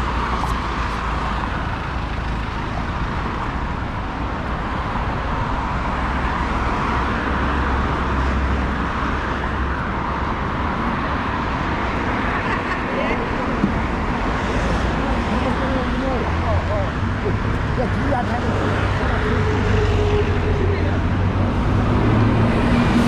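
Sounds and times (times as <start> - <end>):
low road rumble: 0.0 - 23.0.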